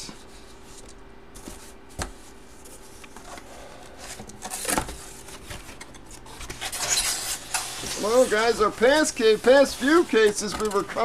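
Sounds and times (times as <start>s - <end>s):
paper and cardboard rustling: 0.2s - 11.0s
scraping rustle: 2.6s - 11.0s.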